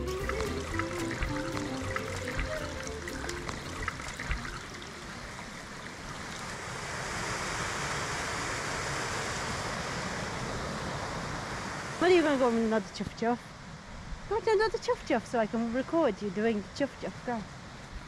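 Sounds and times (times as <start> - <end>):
small cascade rushing: 0.0 - 9.3
stream water over rocks: 0.0 - 12.7.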